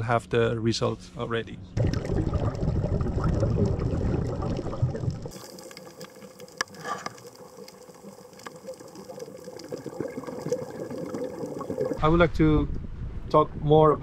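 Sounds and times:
water bubbling and crackling: 0:01.8 - 0:12.0.

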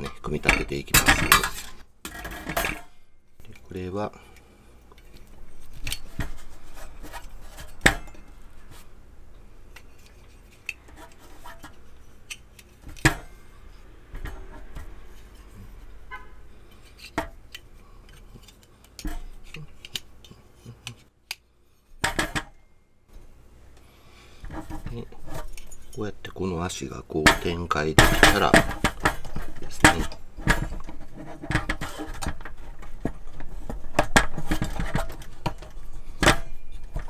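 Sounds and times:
sharp metal knocks: 0:27.2 - 0:32.2.

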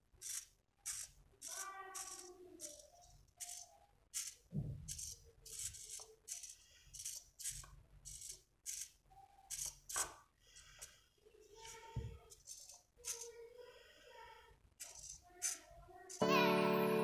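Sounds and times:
servo whirring: 0:00.2 - 0:10.2.

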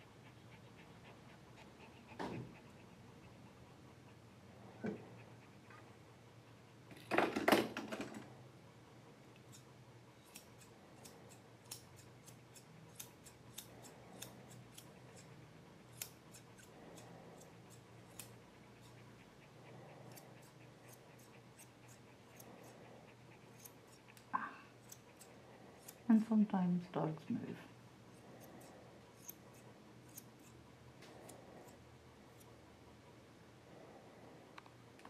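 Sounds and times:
shears snipping hair: 0:09.4 - 0:19.0, 0:20.1 - 0:22.8, 0:23.4 - 0:26.5, 0:28.1 - 0:31.8.

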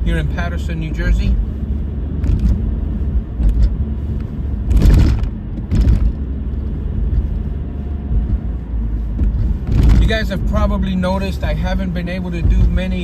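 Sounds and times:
road noise inside moving car: 0:00.0 - 0:13.0.

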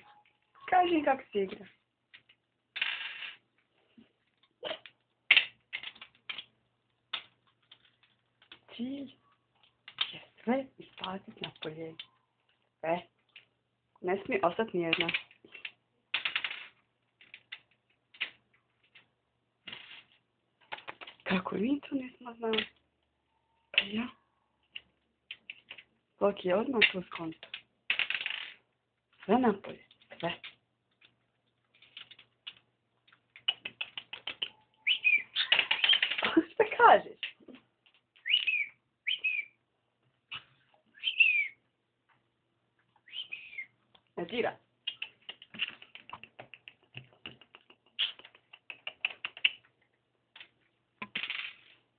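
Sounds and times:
bird pecking game pieces: 0:04.8 - 0:08.6, 0:14.9 - 0:19.1, 0:27.4 - 0:28.6, 0:30.4 - 0:36.2
cockatiel whistled chirps: 0:34.7 - 0:36.0, 0:38.2 - 0:39.6, 0:41.0 - 0:41.6, 0:43.0 - 0:43.7.

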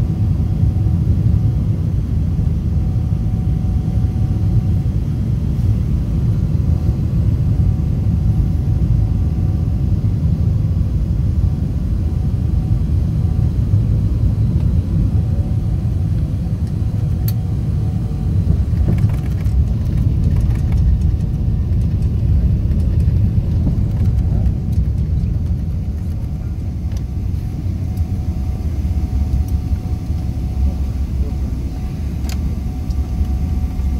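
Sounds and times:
airliner engine rumble: 0:00.0 - 0:33.9
wheels knocking and rattling: 0:18.5 - 0:26.3.

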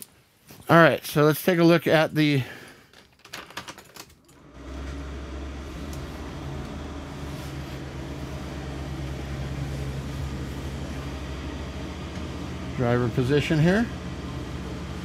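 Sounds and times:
steady low hum: 0:04.4 - 0:15.0.

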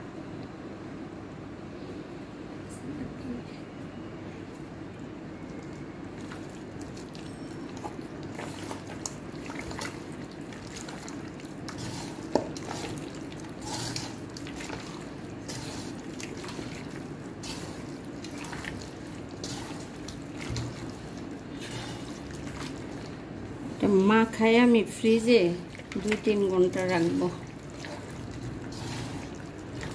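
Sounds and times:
steady low hum: 0:00.0 - 0:29.9
hand squelching raw meat: 0:06.2 - 0:23.8.

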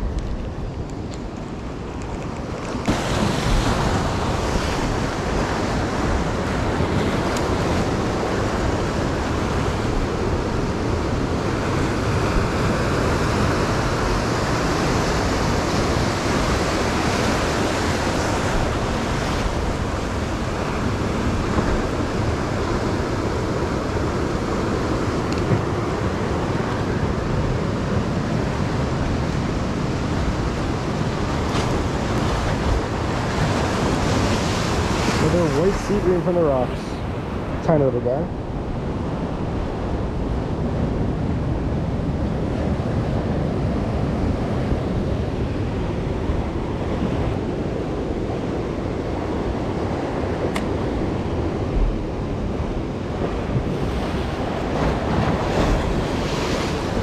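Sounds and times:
sea surf breaking on rocks: 0:00.0 - 0:57.0
wind buffeting microphone: 0:00.0 - 0:57.0.

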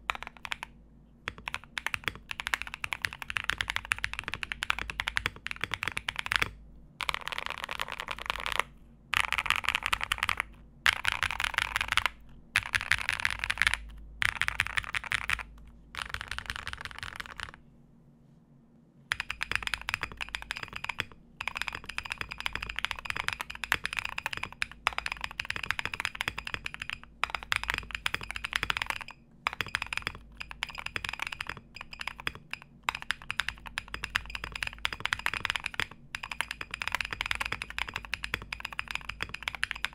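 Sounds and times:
mechanical keyboard typing: 0:00.0 - 0:00.7, 0:01.3 - 0:17.6, 0:19.1 - 0:39.9
faint high keyboard beep: 0:19.1 - 0:39.9.

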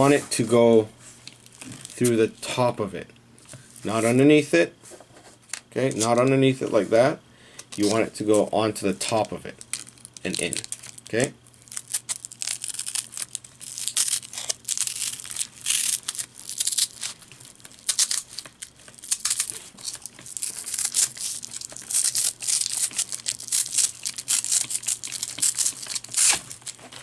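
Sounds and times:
velcro and webbing rasping: 0:09.8 - 0:27.0.

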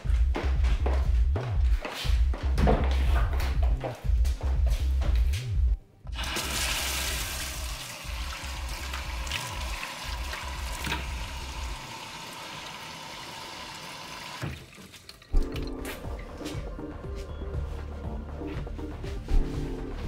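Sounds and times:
tap water running into sink: 0:06.2 - 0:15.7.

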